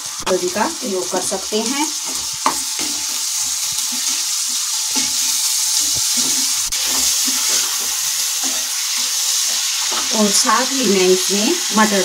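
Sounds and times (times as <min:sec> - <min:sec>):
food sizzling in hot oil: 0:00.0 - 0:12.0
wooden spatula scraping pan: 0:02.0 - 0:10.4.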